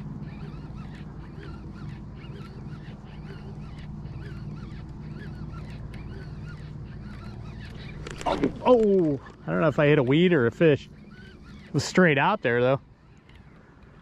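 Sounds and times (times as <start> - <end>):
birds honking: 0.0 - 14.0
steady low hum: 0.0 - 14.0.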